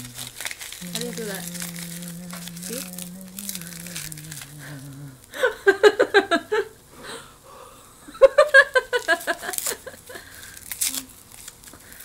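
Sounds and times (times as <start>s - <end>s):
person humming low note: 0.0s - 5.4s
high-pitched voiced bursts: 0.8s - 5.2s.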